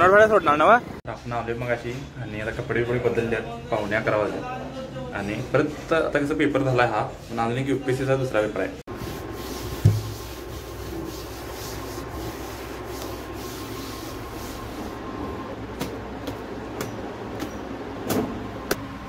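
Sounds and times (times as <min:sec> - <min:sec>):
steady background hum: 0:00.0 - 0:19.0
thump: 0:09.8 - 0:10.1.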